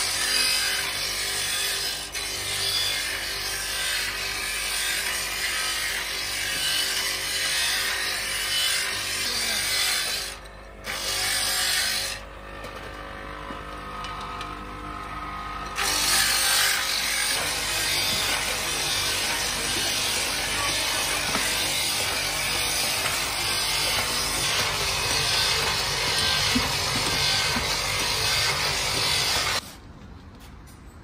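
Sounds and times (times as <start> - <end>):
grinding machine hiss: 15.8 - 29.6.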